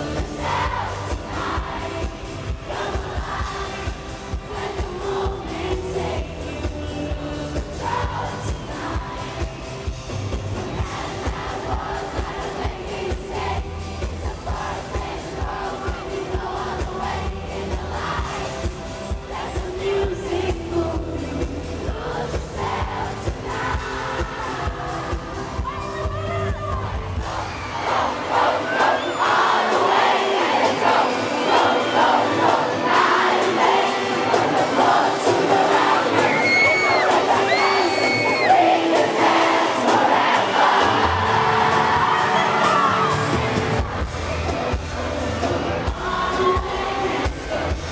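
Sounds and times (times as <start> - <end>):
woman singing into microphone: 0.0 - 9.5, 19.4 - 27.1
bass: 0.0 - 27.8, 40.6 - 47.9
steady drum beat: 0.0 - 28.5
woman singing lead: 0.0 - 47.9.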